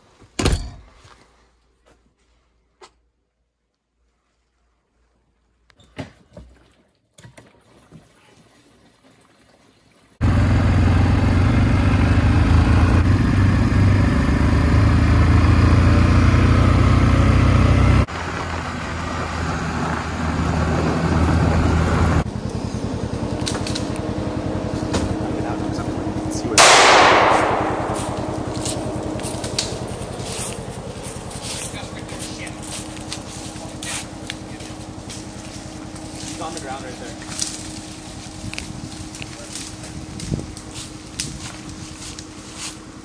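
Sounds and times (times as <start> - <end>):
atv engine running: 10.2 - 43.0.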